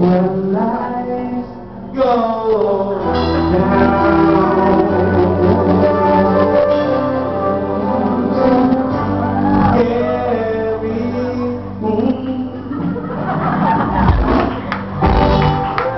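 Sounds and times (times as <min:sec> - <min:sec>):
person singing into microphone: 0:00.0 - 0:13.1
live band music: 0:02.6 - 0:12.3, 0:13.0 - 0:15.9.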